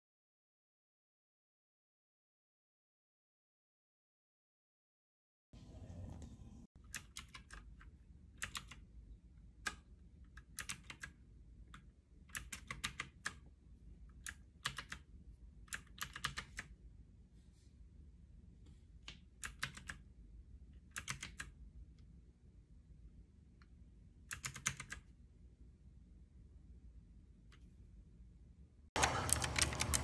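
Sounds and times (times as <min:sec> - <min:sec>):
mechanical keyboard typing: 0:06.8 - 0:08.8, 0:09.6 - 0:13.5, 0:14.1 - 0:15.1, 0:15.7 - 0:16.8, 0:19.3 - 0:20.1, 0:20.8 - 0:21.6, 0:24.3 - 0:25.1, 0:29.0 - 0:30.0.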